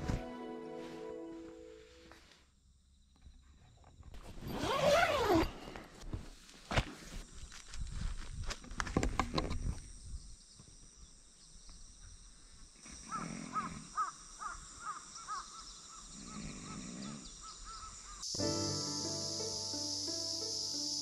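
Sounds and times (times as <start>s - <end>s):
crows cawing: 13.6s - 15.6s.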